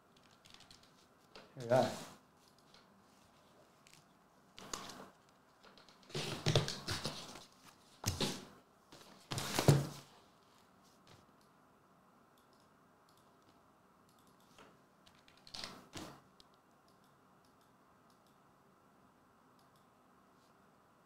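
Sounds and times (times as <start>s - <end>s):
computer keyboard typing: 0.2s - 0.9s, 14.1s - 15.8s.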